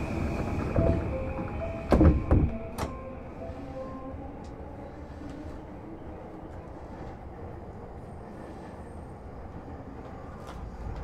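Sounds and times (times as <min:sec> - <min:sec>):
steady high tone: 0:00.0 - 0:05.2
chiming departure melody: 0:00.7 - 0:04.4.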